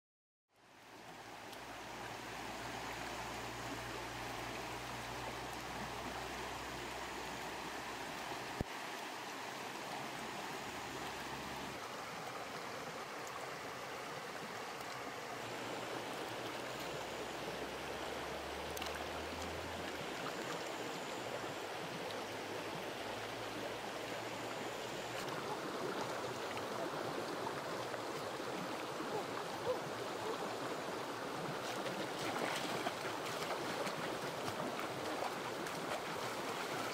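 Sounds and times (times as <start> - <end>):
stream flowing over stones: 0.6 - 36.9
splash in water: 31.6 - 36.9.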